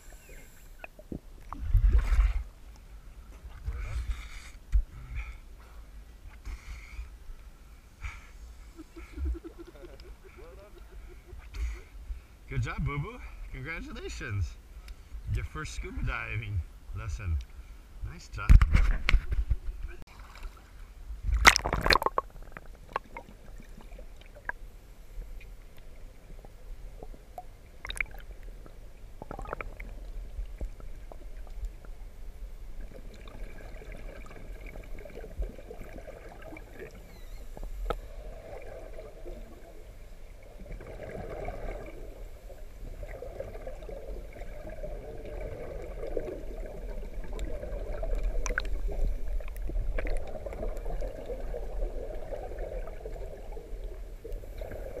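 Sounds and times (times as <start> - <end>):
low underwater water rumble: 0.0 - 55.0
muffled underwater splash: 21.2 - 24.6
scuba regulator bubbles: 21.2 - 24.6, 26.9 - 31.6, 32.8 - 55.0.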